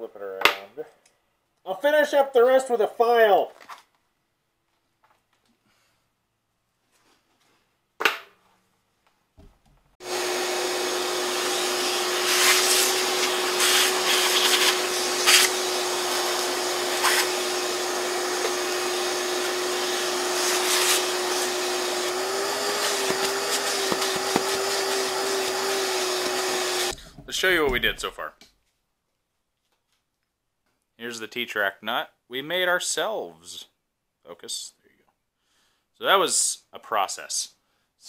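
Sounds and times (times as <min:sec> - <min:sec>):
shop vacuum running: 0:10.0 - 0:27.0
hose crackles: 0:11.6 - 0:17.5.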